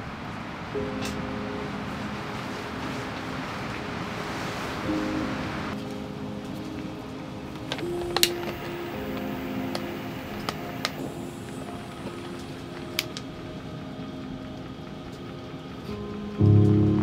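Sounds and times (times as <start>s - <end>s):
soft background music: 0.0s - 17.0s
jet flame hissing: 7.6s - 14.6s.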